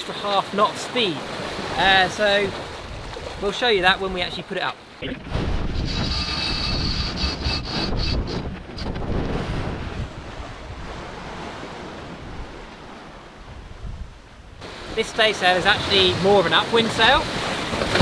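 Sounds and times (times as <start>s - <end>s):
water rushing along a hull: 0.0s - 18.0s
wind buffeting microphone: 5.0s - 14.8s.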